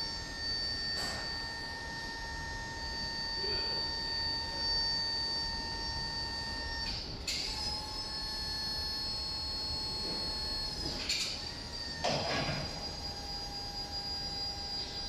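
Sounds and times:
electric motor whine: 0.0s - 15.0s.

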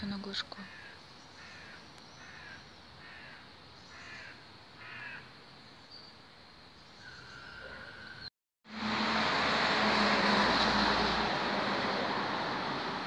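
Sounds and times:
crow cawing: 0.6s - 5.3s.

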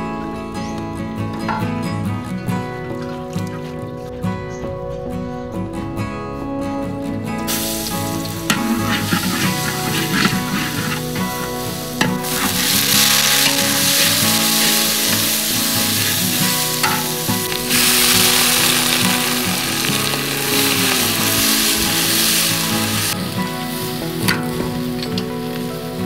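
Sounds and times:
spatula stirring in wok: 7.5s - 23.2s
hot oil sizzling in wok: 7.5s - 26.0s.

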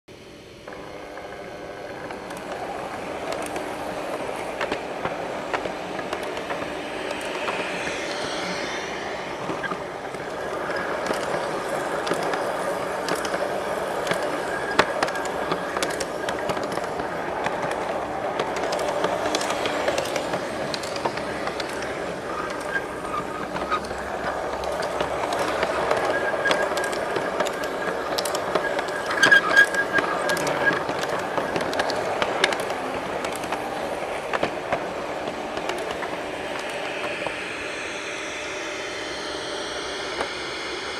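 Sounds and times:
thin high whine: 0.1s - 40.9s
model train rolling on track: 0.2s - 40.9s
loud train clacks: 0.7s - 37.8s
clicks over rail joints: 10.7s - 37.4s.

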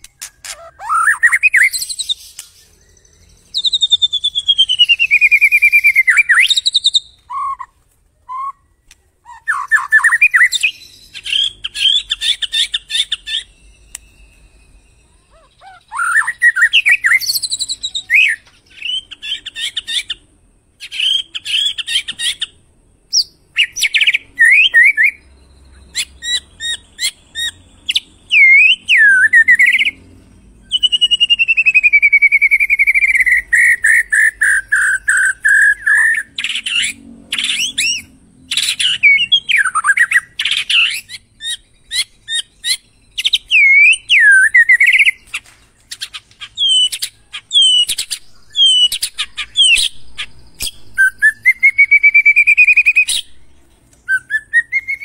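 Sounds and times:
bird singing whistles and clicks: 0.0s - 7.7s, 8.3s - 20.2s, 23.1s - 30.0s, 30.6s - 55.0s.

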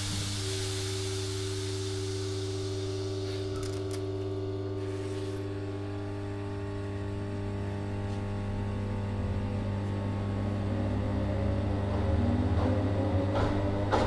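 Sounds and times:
high air hiss: 0.0s - 3.8s
electric train humming: 0.0s - 14.0s.

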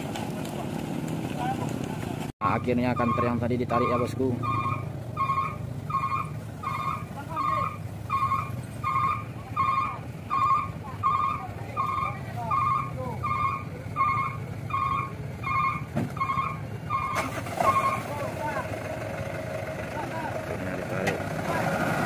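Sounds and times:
truck engines running: 0.0s - 22.0s
truck reversing alarm beeping: 2.5s - 18.1s.

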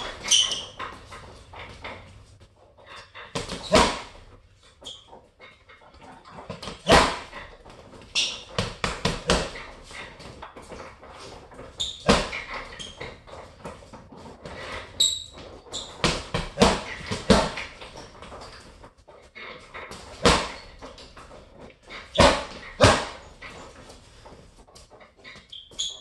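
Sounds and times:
short high squeaks: 0.0s - 1.0s, 14.7s - 16.0s, 25.2s - 26.0s
boxing gloves punching heavy bag: 3.3s - 4.3s, 6.4s - 10.8s, 11.5s - 13.5s, 15.6s - 18.8s, 19.9s - 23.7s.

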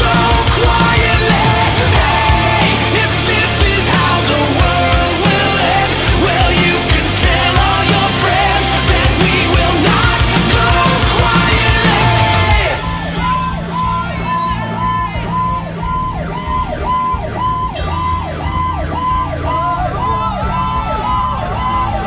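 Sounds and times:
low engine rumble: 0.0s - 22.0s
rock music: 0.0s - 22.0s
electronic siren yelping: 12.1s - 22.0s.

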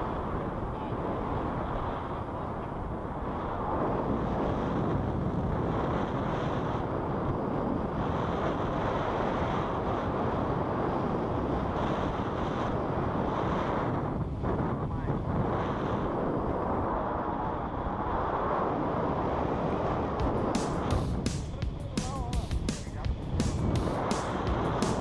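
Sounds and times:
wind noise on microphone: 0.0s - 25.0s.

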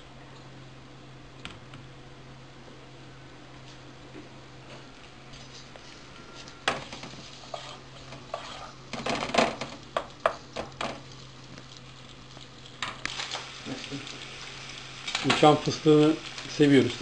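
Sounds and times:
onions sizzling in oil: 4.8s - 17.0s
spatula scraping a frying pan: 6.8s - 9.3s.

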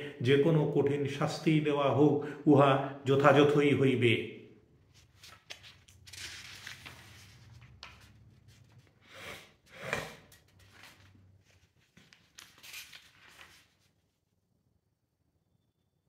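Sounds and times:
person breathing: 2.2s - 3.0s, 9.0s - 10.2s
soft rustles: 10.4s - 14.1s.

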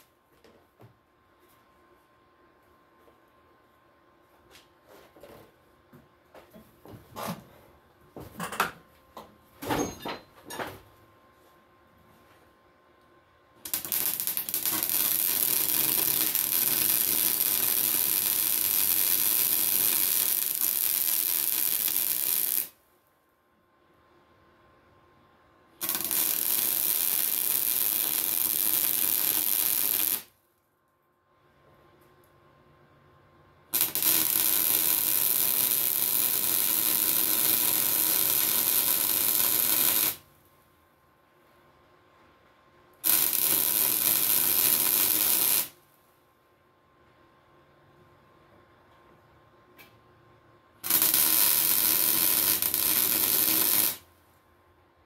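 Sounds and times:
welding arc crackling hiss: 13.6s - 22.8s, 25.8s - 30.4s, 33.7s - 40.3s, 43.0s - 45.8s, 50.8s - 54.1s.

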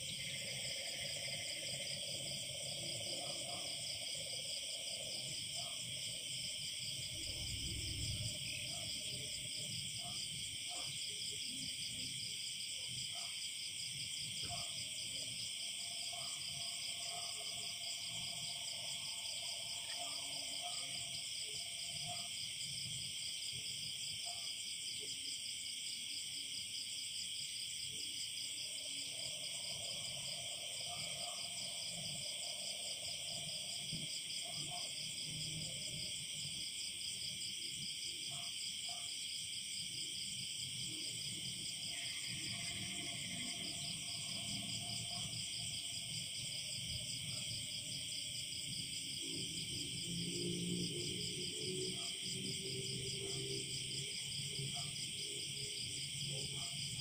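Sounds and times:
crickets trilling: 26.6s - 57.0s.

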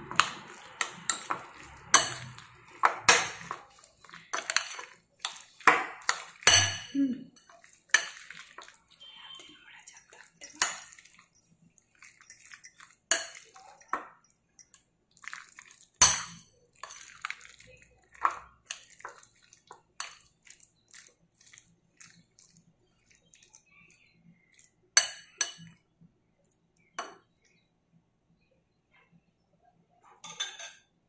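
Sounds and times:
spoon clinking against glass bowl: 0.1s - 14.8s, 16.0s - 19.3s, 25.0s - 25.8s, 30.2s - 30.9s.

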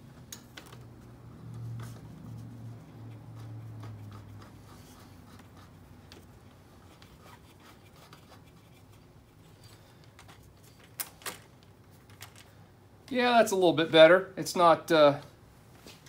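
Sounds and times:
rubbing and light taps on parts: 0.2s - 10.9s.

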